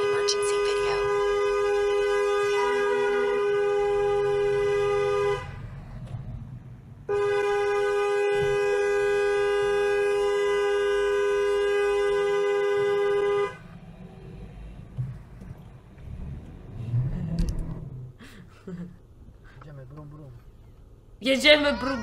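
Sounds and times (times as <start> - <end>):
two-note car horn blasts: 0.0 - 5.6, 7.1 - 13.6.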